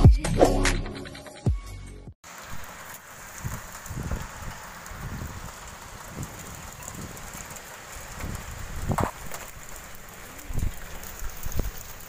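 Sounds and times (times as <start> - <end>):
heavy rain falling: 2.2 - 12.0
wind rumbling on microphone: 3.2 - 12.0.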